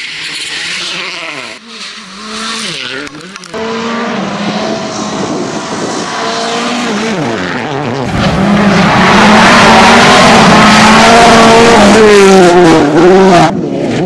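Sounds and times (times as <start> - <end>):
rally car engines revving: 0.0 - 14.0.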